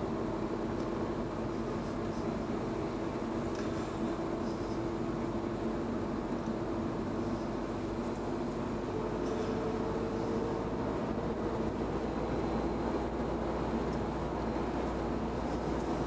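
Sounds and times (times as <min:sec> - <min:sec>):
car engine hum: 0:00.0 - 0:16.0.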